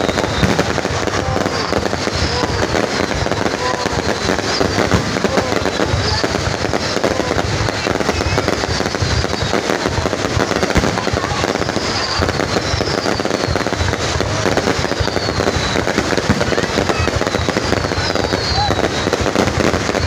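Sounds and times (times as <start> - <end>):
falling firework whistles: 0.0 - 20.0
fireworks bangs and crackling: 0.0 - 20.0.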